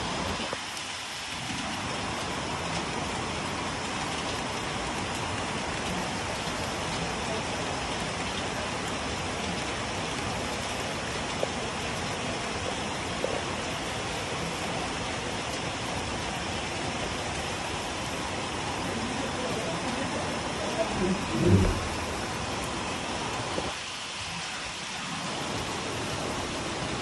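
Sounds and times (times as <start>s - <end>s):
rain on metal roof: 0.0s - 27.0s.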